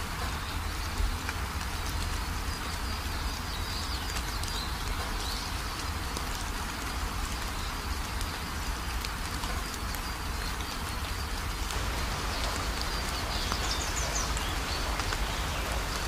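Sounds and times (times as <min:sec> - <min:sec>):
even hiss: 0:11.7 - 0:16.0.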